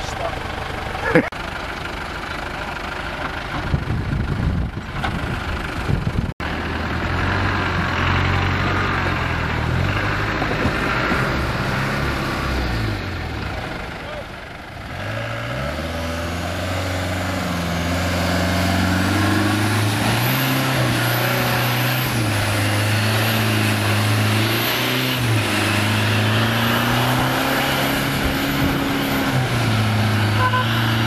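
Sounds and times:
car engine revving: 6.4 - 14.2, 14.8 - 31.0.

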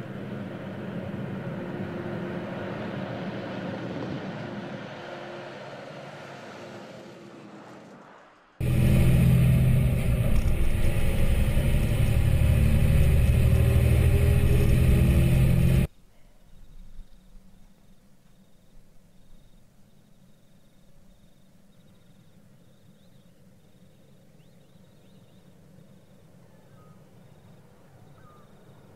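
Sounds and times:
truck engine droning: 0.0 - 15.9.

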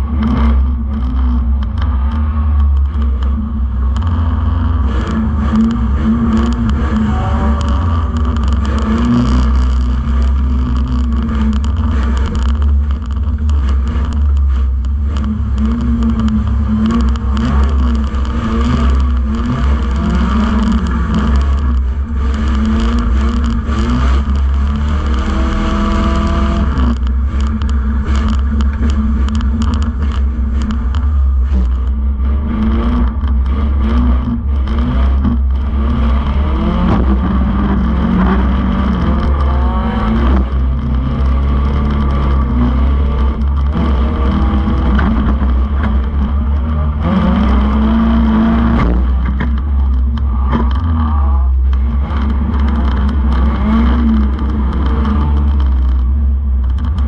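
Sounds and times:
heavy low rumble: 0.0 - 57.0
racing car engine revving: 0.0 - 57.0.

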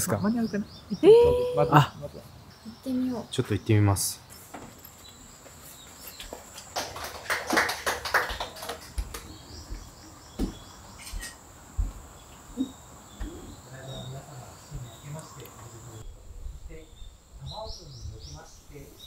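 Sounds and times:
birds chirping: 0.0 - 19.0
footsteps on wooden floorboards: 8.9 - 13.5.

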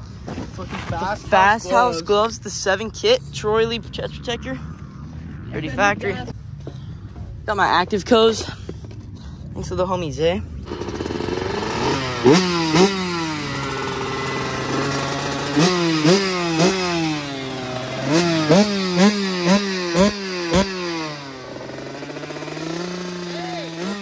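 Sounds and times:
motorbike engine idling: 10.4 - 24.0
motorbike throttle blips: 10.6 - 24.0.

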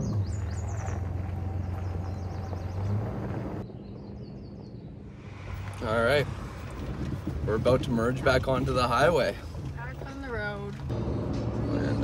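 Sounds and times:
truck driving on gravel: 0.0 - 3.7
bird chirping: 0.0 - 5.1.

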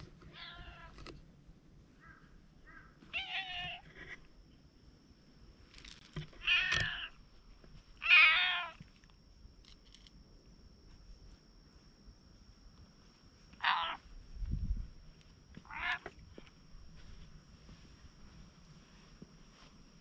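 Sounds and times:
cat meowing: 0.3 - 1.0, 2.7 - 4.2, 6.4 - 7.1, 8.0 - 8.8, 13.6 - 14.0, 15.6 - 16.1.

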